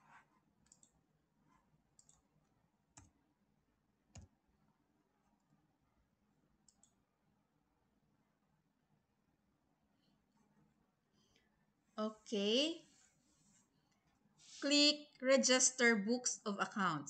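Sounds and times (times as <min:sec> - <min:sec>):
faint computer mouse clicks: 0:00.6 - 0:01.0, 0:02.0 - 0:02.2, 0:06.6 - 0:07.0.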